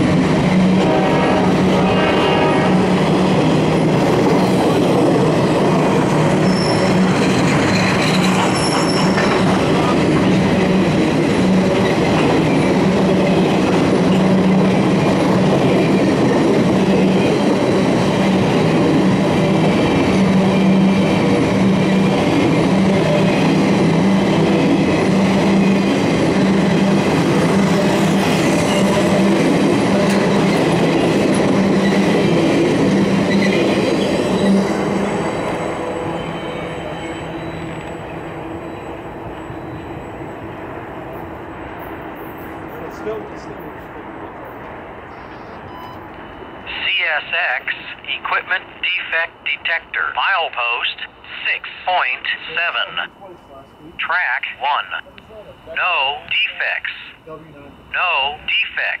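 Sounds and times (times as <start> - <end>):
steel wheels rumbling on rails: 0.0 - 45.5.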